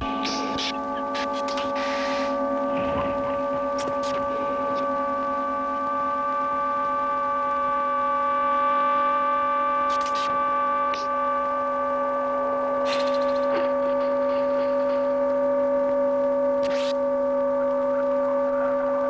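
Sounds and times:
electronic drone chord: 0.0s - 19.0s.

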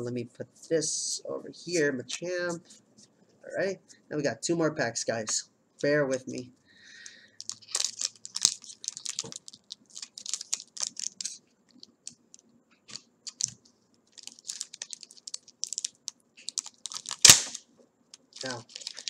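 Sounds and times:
foil wrapper crinkling: 7.0s - 17.6s, 18.2s - 19.0s.

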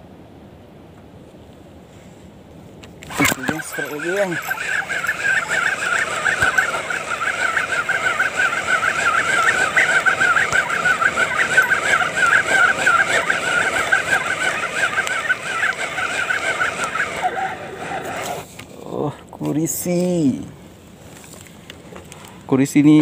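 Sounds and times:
fishing reel whirring: 3.0s - 18.5s.

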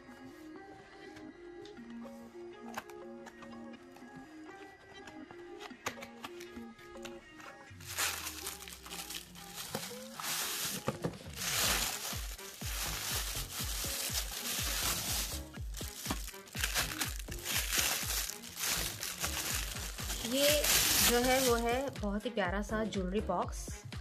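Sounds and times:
background music with low beat: 0.0s - 24.0s
tissue paper and plastic crinkling: 7.7s - 21.9s.

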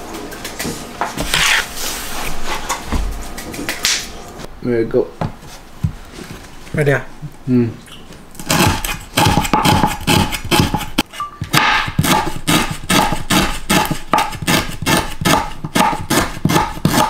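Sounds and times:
knife chopping on wooden board: 8.4s - 17.0s.

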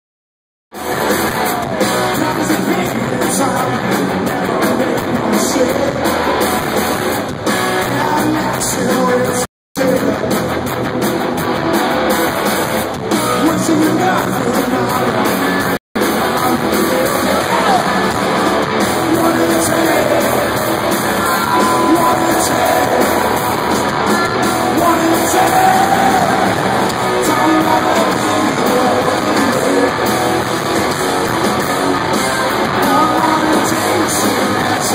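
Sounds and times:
live rock band playing: 0.7s - 34.9s
person singing: 13.1s - 18.3s, 19.0s - 30.1s, 32.5s - 34.9s.

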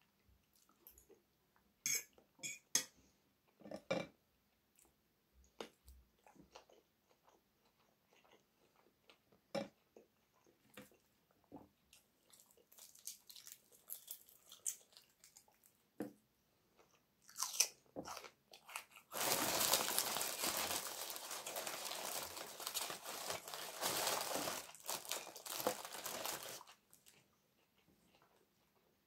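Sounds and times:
paper bag crinkling: 19.1s - 26.8s.

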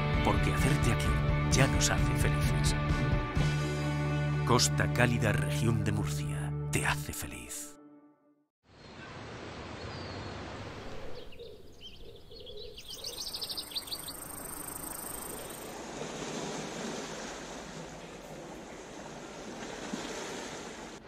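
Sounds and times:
bird chirps: 9.8s - 15.7s
sea water washing at shore: 15.1s - 21.0s.

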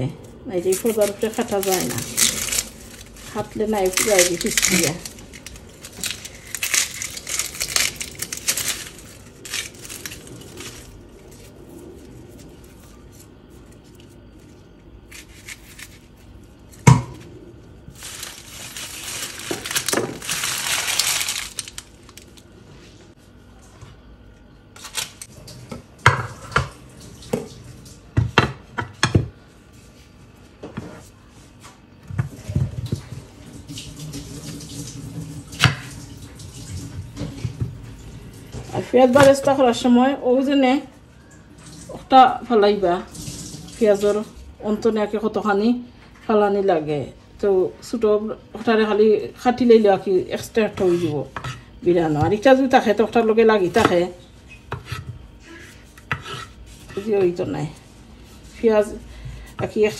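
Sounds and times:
dry crinkling and rustling: 0.2s - 23.1s, 24.8s - 25.4s.

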